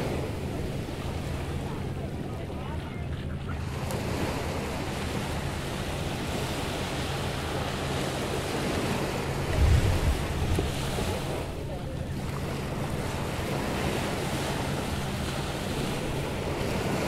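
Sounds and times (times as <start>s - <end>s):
surf breaking on a beach: 0.0s - 17.0s
wind buffeting microphone: 8.5s - 11.6s.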